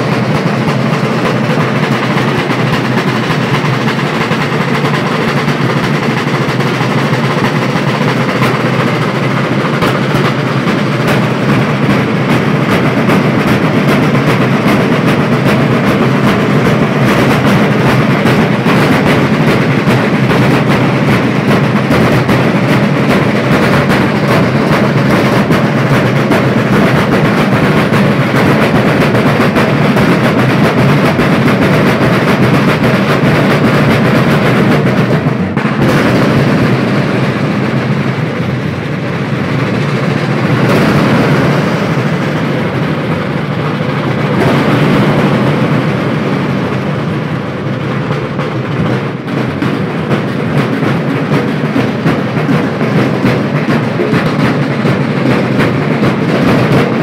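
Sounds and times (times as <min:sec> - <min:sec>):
ensemble drumming: 0:00.0 - 0:57.0.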